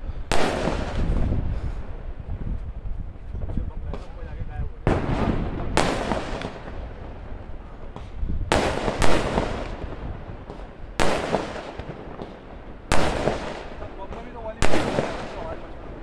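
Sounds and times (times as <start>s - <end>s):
firecracker bangs with echo: 0.2s - 2.2s, 3.9s - 16.0s
small firecracker cracks: 5.8s - 6.8s, 7.9s - 15.8s.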